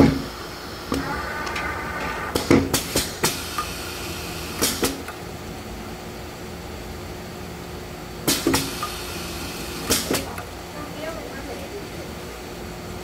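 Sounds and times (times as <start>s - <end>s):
machine whine: 0.0s - 6.4s
printing machine clacking: 0.9s - 3.7s.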